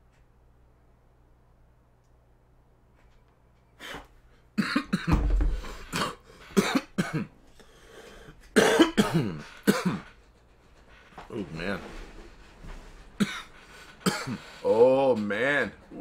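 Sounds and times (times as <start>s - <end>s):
man coughing: 4.6s - 7.3s, 8.6s - 10.2s, 13.2s - 14.6s.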